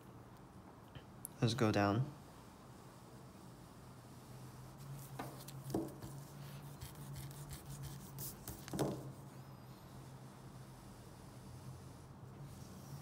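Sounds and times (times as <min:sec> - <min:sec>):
pencil scratching on paper: 0:02.8 - 0:13.0
taps on wooden table: 0:05.7 - 0:06.0.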